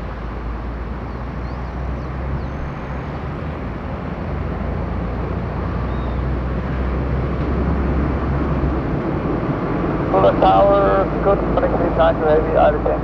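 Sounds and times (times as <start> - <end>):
distant jet engines rumbling: 0.0 - 13.0
faint bird chirps: 1.1 - 3.2, 5.8 - 6.3.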